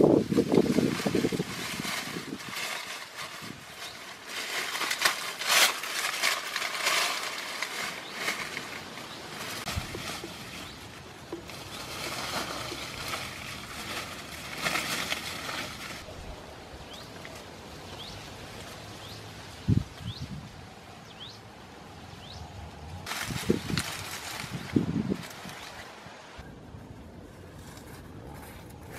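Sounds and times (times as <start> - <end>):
dry leaves rustling and crackling: 0.0 - 20.9, 22.2 - 28.9
bird chirping: 16.6 - 23.0.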